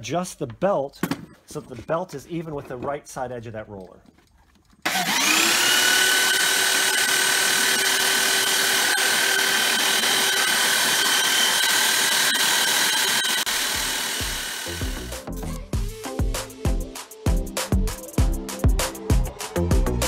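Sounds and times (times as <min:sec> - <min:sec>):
belt sander running with whine: 0:04.9 - 0:15.2.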